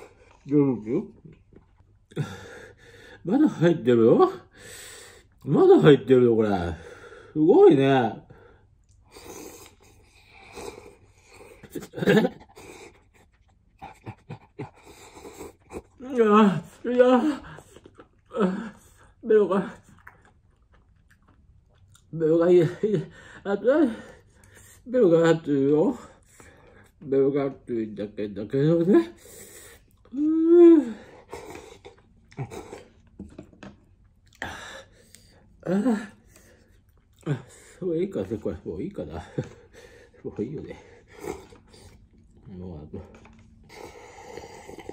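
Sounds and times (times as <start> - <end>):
breaths: 2.1 - 3.3, 4.5 - 5.4, 6.7 - 7.4, 23.0 - 24.9, 26.0 - 27.0, 34.4 - 37.8, 43.6 - 44.9
breathy puffs: 43.1 - 44.9
person slurping noodles: 43.7 - 44.9.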